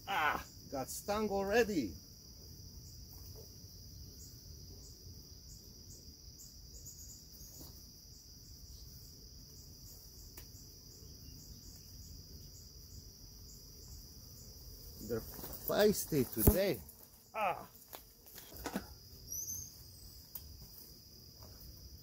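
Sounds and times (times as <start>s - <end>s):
high-pitched insect trill: 0.0s - 22.0s.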